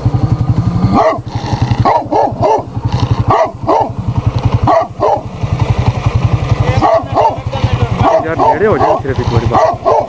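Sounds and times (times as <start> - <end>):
dog barking deeply: 0.8 - 4.0, 4.6 - 5.3, 6.7 - 10.0.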